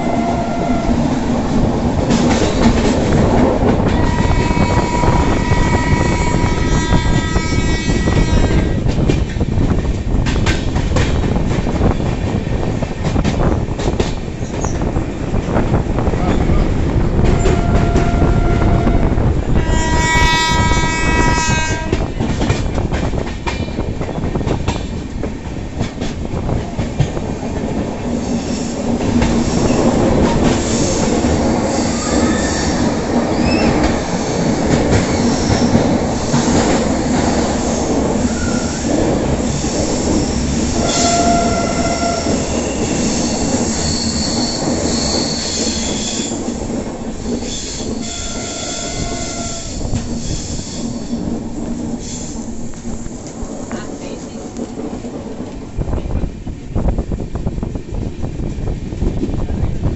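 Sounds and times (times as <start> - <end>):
train horn: 0.0 - 1.1, 4.0 - 8.8, 17.2 - 22.1, 40.8 - 42.8, 48.0 - 49.9
train wheels rumbling and rattling: 0.0 - 59.9
wheel squeals: 40.9 - 46.4.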